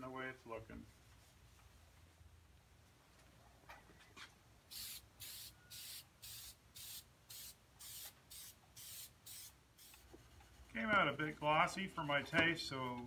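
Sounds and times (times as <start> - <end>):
aerosol spray can hissing: 4.7 - 10.0.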